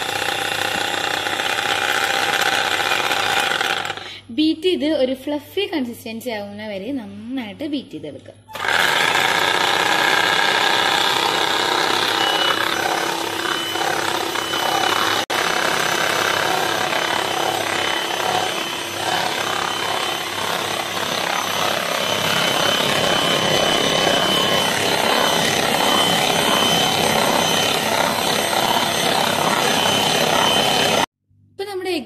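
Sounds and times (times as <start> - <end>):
electric hand mixer whine: 0.0 - 4.1, 8.5 - 31.1
beaters whipping in bowl: 8.6 - 31.1.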